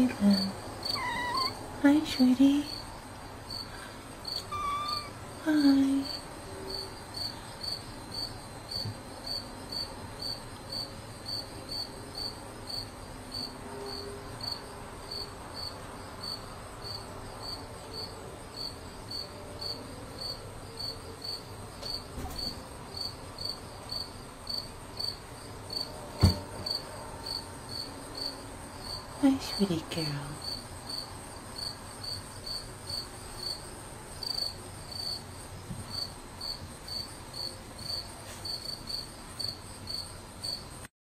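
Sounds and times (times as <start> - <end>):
cricket chirping: 0.0 - 29.8, 30.4 - 40.9
sharp thump: 26.2 - 26.5.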